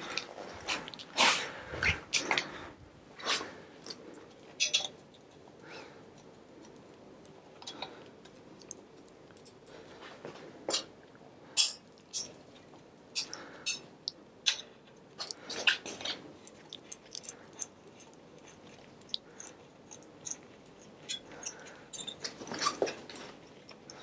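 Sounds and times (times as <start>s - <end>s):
metal tools clicking on bike frame: 4.6s - 5.0s, 11.6s - 12.4s, 19.4s - 22.7s.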